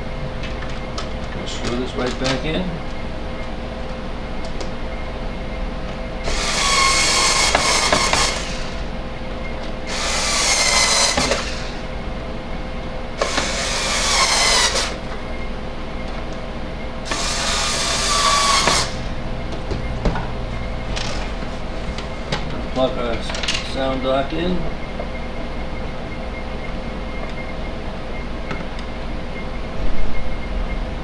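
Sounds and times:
electric screwdriver motor whine: 6.2 - 8.9, 9.9 - 11.8, 13.2 - 15.0, 17.1 - 19.1.

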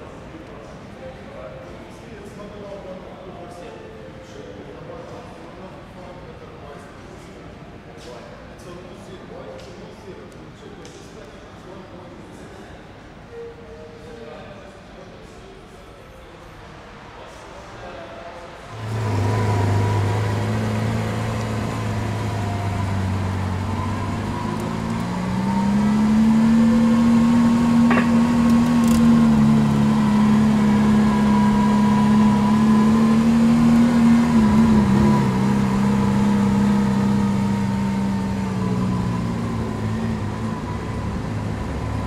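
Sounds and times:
car engine idling and revving: 18.7 - 42.0.

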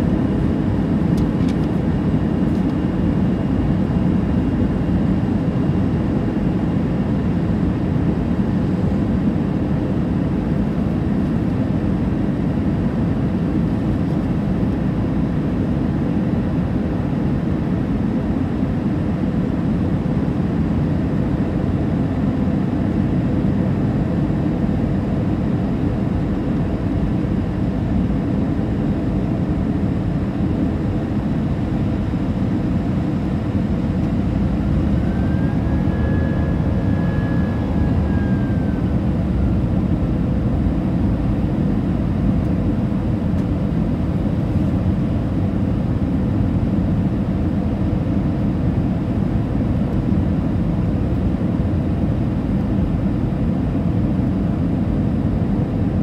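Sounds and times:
airliner cabin engine rumble: 0.0 - 56.0
faint whining tone: 31.8 - 44.7.

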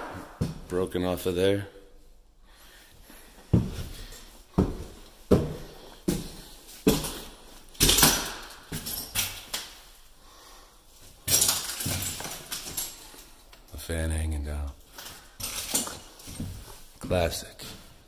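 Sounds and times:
heavy footsteps on bare floor: 3.1 - 7.7.

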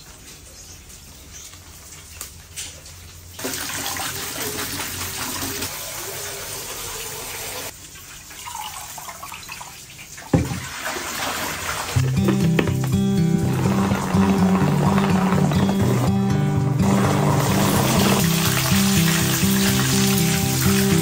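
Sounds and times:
water running from tap: 2.4 - 21.0
water splashing: 7.6 - 21.0.

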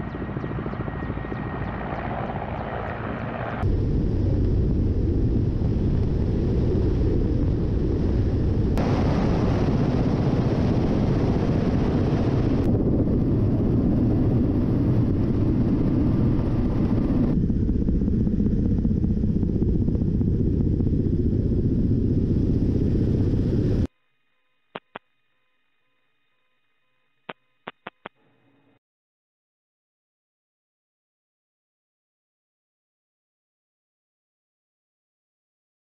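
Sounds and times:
helicopter rotor and engine rumble: 0.0 - 23.9
single click: 24.8 - 25.1, 27.3 - 28.2.

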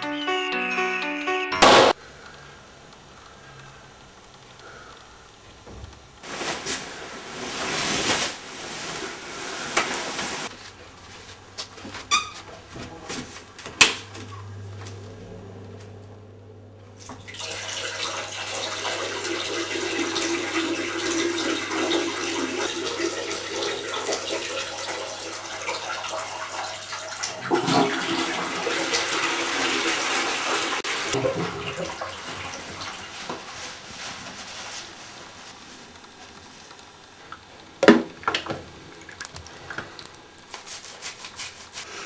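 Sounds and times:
water running: 14.0 - 34.1, 37.3 - 41.9.

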